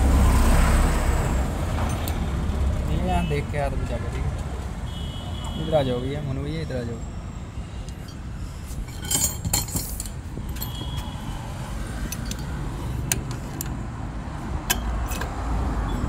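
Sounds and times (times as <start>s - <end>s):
metal tools clinking: 7.9s - 11.1s, 12.0s - 13.8s.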